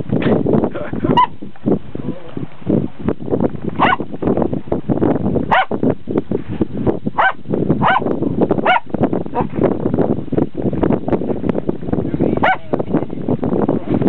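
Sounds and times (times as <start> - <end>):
small dog yapping: 3.8 - 4.0.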